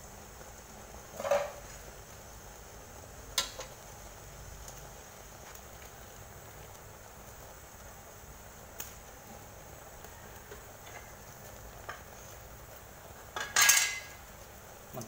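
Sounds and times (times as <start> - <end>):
sauce bubbling in a pot: 0.0 - 15.0.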